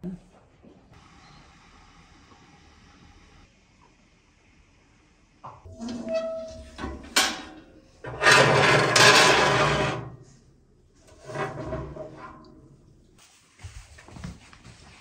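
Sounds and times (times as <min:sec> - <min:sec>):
metal clank: 0:05.7 - 0:10.1
oven door creak: 0:05.7 - 0:10.1
pan scraping metal floor: 0:05.7 - 0:10.3, 0:11.0 - 0:12.7.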